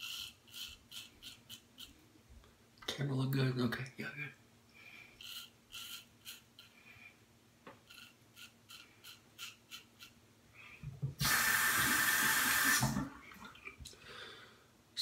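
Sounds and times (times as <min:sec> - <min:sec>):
razor scraping stubble: 0:00.0 - 0:02.0, 0:05.2 - 0:06.8, 0:07.8 - 0:10.2
tap running at sink: 0:10.8 - 0:13.1.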